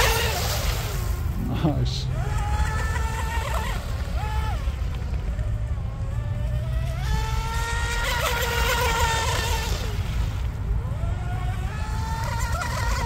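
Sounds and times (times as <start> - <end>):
electric motor whining: 0.0 - 13.0.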